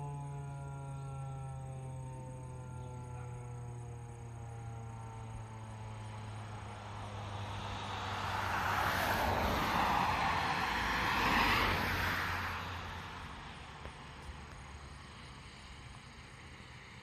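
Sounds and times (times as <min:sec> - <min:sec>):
siren winding down: 0:00.0 - 0:13.3
vehicle passing by: 0:02.4 - 0:17.0.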